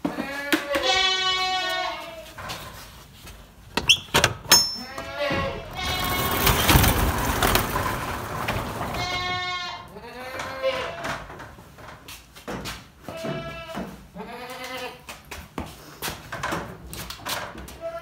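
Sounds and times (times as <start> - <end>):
goats bleating: 0.0 - 2.3, 4.8 - 6.5
scraping rattle: 4.5 - 9.7.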